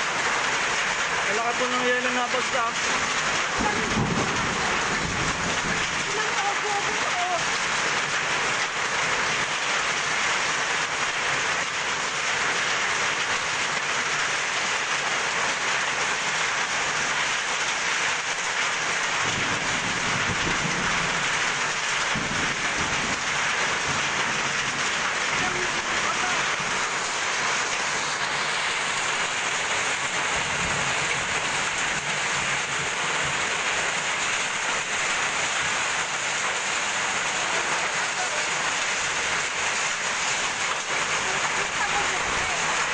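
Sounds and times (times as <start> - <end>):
hail and rain on metal roof: 0.0 - 42.9
low rumbles: 2.7 - 7.6.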